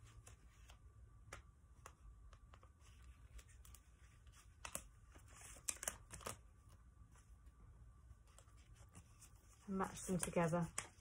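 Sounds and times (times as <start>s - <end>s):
paper rustling and crinkling: 2.4s - 7.4s.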